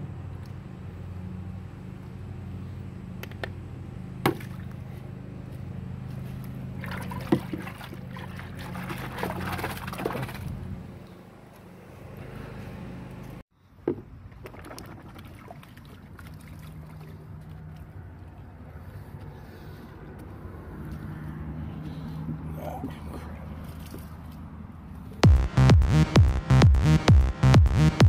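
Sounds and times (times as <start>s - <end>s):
steady low hum: 0.0s - 13.8s, 16.0s - 28.0s
water splashing in plastic tub: 6.8s - 10.5s, 14.3s - 17.3s.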